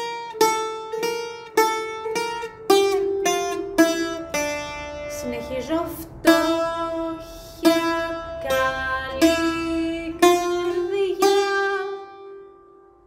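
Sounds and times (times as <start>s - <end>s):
bouzouki notes plucked slowly: 0.0s - 13.0s.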